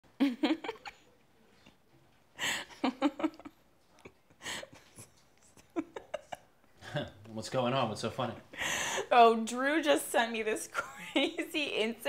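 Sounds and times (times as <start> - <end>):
woman giggling: 0.1 - 1.1, 2.4 - 6.6.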